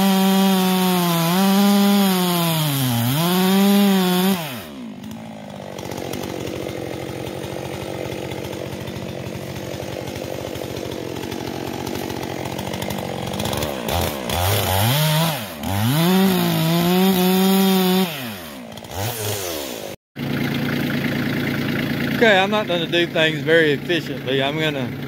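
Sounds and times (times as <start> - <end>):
chainsaw cutting log: 0.0 - 25.0
tractor engine idling: 20.2 - 25.0.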